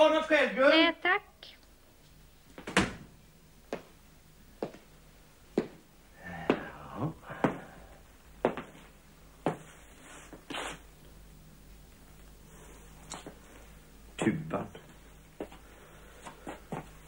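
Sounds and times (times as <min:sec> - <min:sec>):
footsteps on wooden floor: 0:05.6 - 0:05.8, 0:08.4 - 0:09.7.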